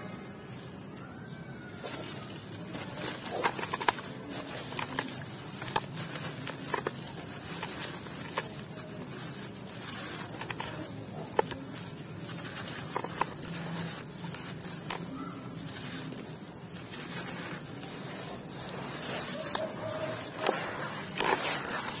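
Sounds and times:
wet dirt crumbling: 0:01.7 - 0:22.0.

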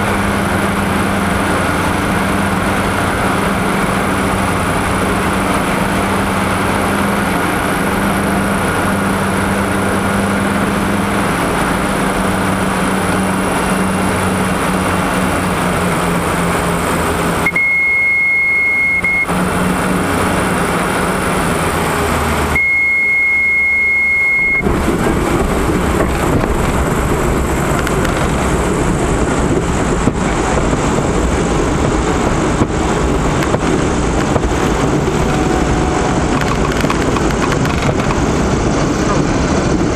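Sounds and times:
aircraft engine drone: 0:00.0 - 0:39.9
wheels rumbling on grass: 0:00.0 - 0:39.9
high beep: 0:17.4 - 0:19.3, 0:22.6 - 0:24.7.

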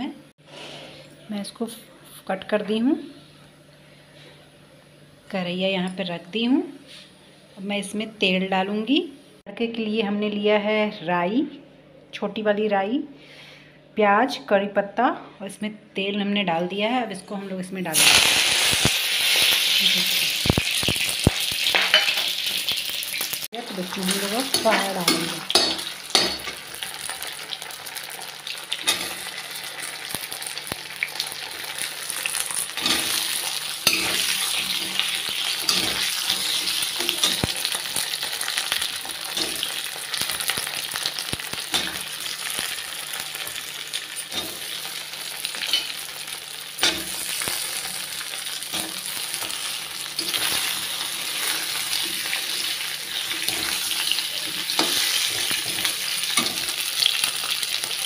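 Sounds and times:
dumplings sizzling in hot oil: 0:17.9 - 0:58.0
metal spoon scraping a pan: 0:21.7 - 0:22.6, 0:24.0 - 0:26.6, 0:28.8 - 0:29.4, 0:32.6 - 0:37.7, 0:38.8 - 0:39.8, 0:44.2 - 0:44.8, 0:45.6 - 0:46.0, 0:53.2 - 0:56.8.

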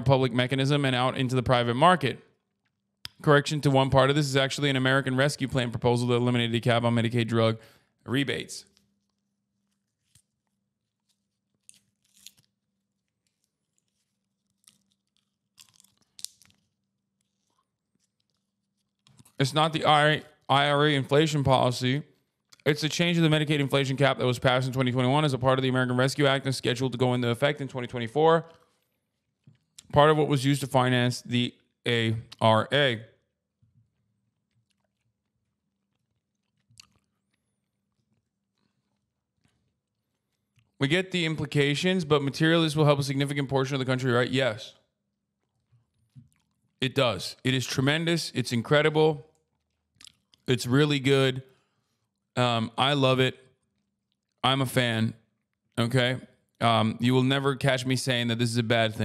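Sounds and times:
crunching bites: 0:08.6 - 0:19.4, 0:34.4 - 0:40.8, 0:49.6 - 0:50.5.

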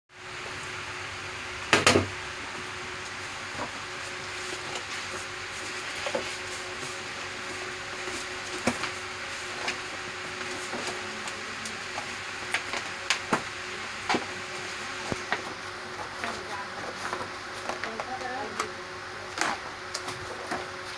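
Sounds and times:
pages crackling and tapping: 0:03.5 - 0:14.3, 0:14.9 - 0:18.7, 0:19.3 - 0:20.9.

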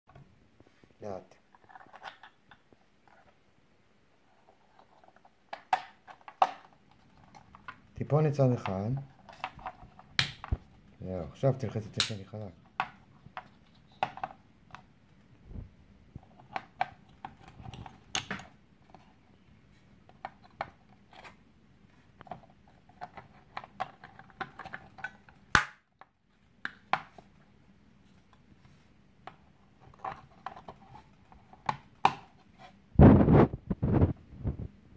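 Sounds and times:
plastic snapping: 0:09.3 - 0:10.6, 0:11.9 - 0:12.2, 0:23.1 - 0:25.8.

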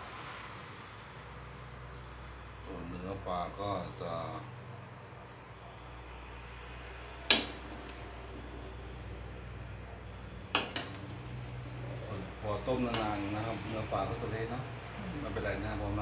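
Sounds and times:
crickets chirping: 0:00.0 - 0:16.0
metal ladle knocking on pot: 0:07.3 - 0:08.0, 0:10.5 - 0:11.1.

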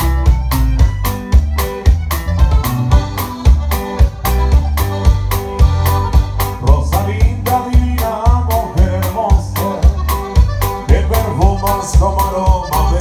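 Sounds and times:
button accordion: 0:00.0 - 0:13.0
drum kit: 0:00.0 - 0:13.0
electric bass: 0:00.0 - 0:13.0
twelve-string guitar: 0:00.0 - 0:13.0.

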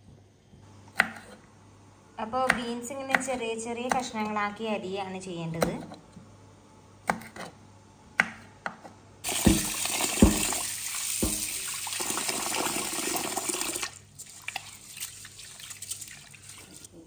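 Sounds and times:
tap water running into bowl: 0:09.2 - 0:16.8.

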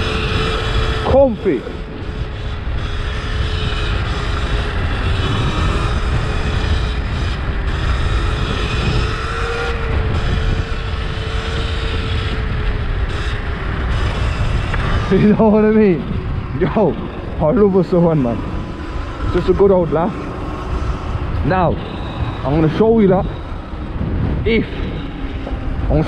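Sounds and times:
electric motor whine: 0:00.0 - 0:26.0
wind and road noise: 0:00.0 - 0:26.0.

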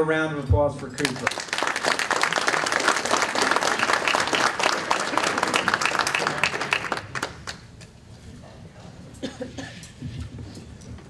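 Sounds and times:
audience applauding: 0:01.0 - 0:07.8.

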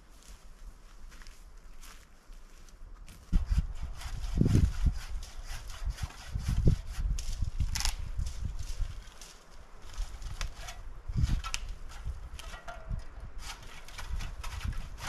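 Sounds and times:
brush rustling: 0:00.0 - 0:15.0
twigs snapping and crackling: 0:07.2 - 0:13.1.

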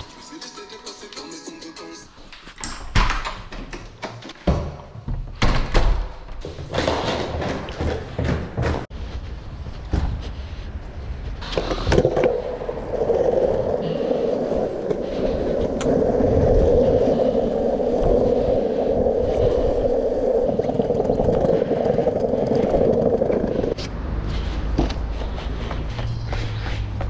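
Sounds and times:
longboard wheels rolling on asphalt: 0:06.4 - 0:27.0.

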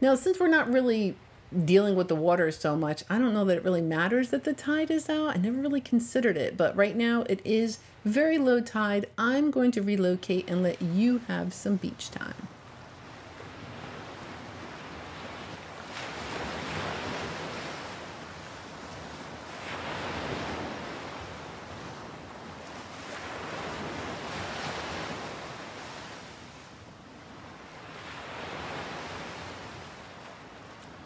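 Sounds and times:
small waves breaking: 0:12.4 - 0:31.0.

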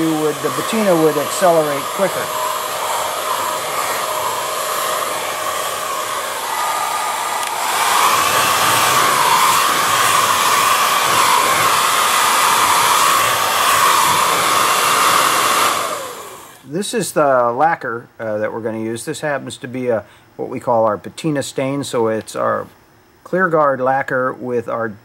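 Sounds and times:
hair dryer blowing into sink: 0:00.0 - 0:16.6.

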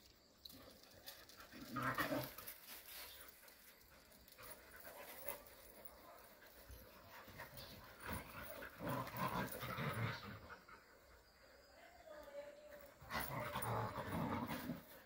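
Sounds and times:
dogs panting: 0:02.3 - 0:11.8.

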